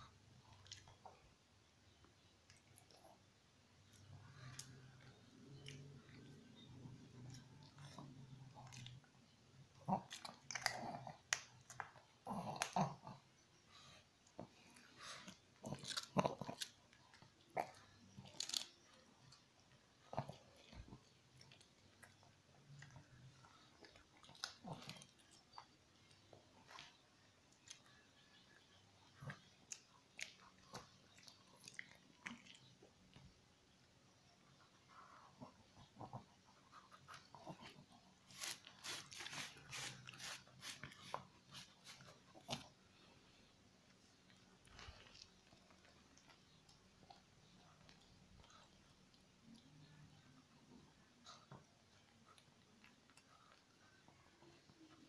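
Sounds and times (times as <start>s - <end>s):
dog crunching a cracker: 14.6s - 19.4s.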